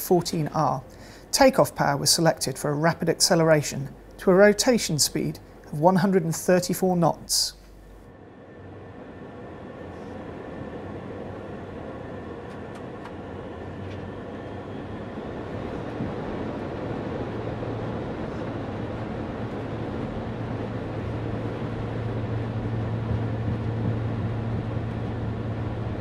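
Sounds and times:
turboprop engines drone: 0.0 - 26.0
strong low hum: 6.8 - 26.0.

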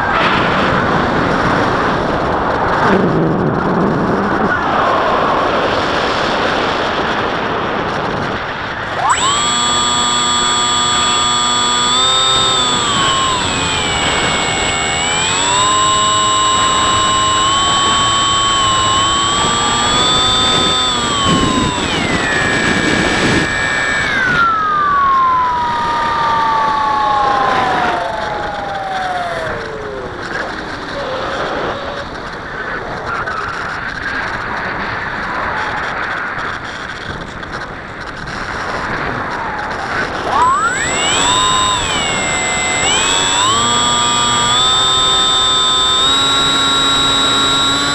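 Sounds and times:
electric motor propeller whine: 8.8 - 32.3, 38.0 - 47.9.

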